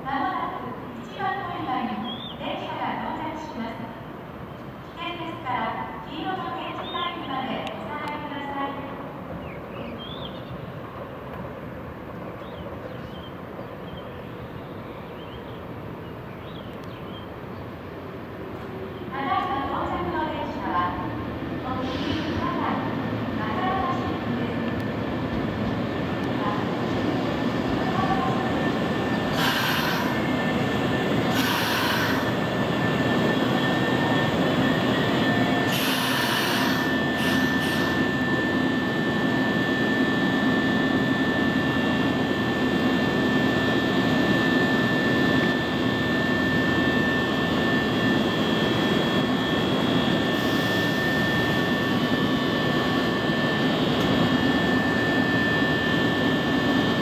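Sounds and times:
electric train running hum: 0:00.0 - 0:57.0
steady high whine: 0:15.8 - 0:57.0
short hissing bursts: 0:29.3 - 0:30.2, 0:31.3 - 0:32.4, 0:35.7 - 0:38.0.

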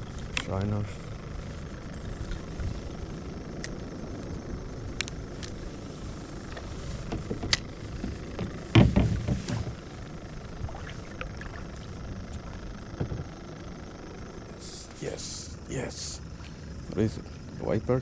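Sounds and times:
steady low rumble: 0:00.0 - 0:18.0
paddle knocking on plastic kayak: 0:08.4 - 0:09.7.

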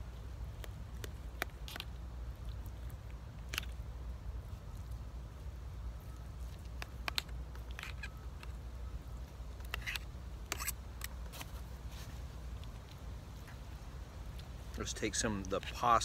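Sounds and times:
low steady rumble: 0:00.0 - 0:16.0.

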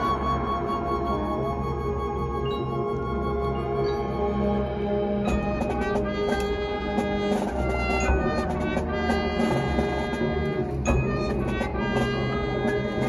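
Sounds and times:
marching band playing: 0:05.2 - 0:13.0.

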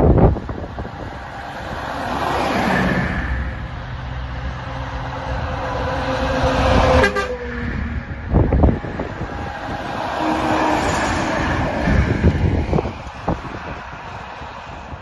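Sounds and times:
wind on microphone: 0:00.0 - 0:07.0, 0:07.6 - 0:15.0
trucks rumbling past: 0:00.0 - 0:15.0
truck air horn chord: 0:06.2 - 0:07.5.

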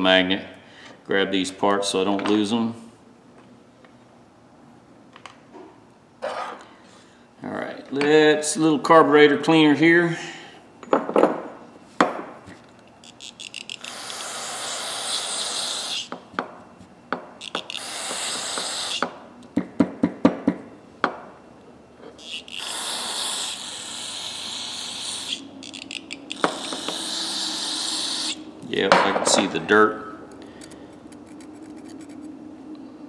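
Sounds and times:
ratchet tool clicks: 0:13.0 - 0:14.2, 0:17.4 - 0:17.9, 0:25.3 - 0:27.0
aerosol spray hissing: 0:13.8 - 0:16.1, 0:17.5 - 0:19.0.

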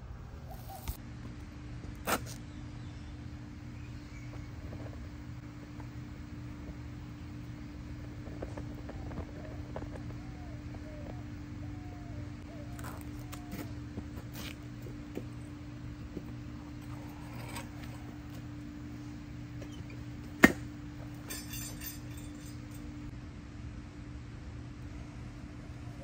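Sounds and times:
steady low hum: 0:00.0 - 0:26.0
sharp metallic clank: 0:20.4 - 0:22.9.

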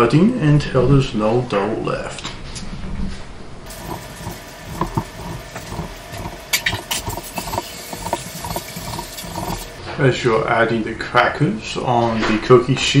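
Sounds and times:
steady mechanical hum: 0:02.1 - 0:10.3.

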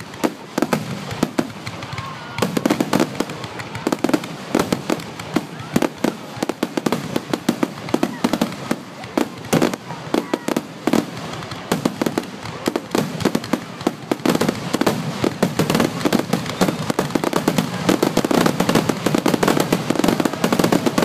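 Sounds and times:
fireworks bursting: 0:00.0 - 0:21.0.

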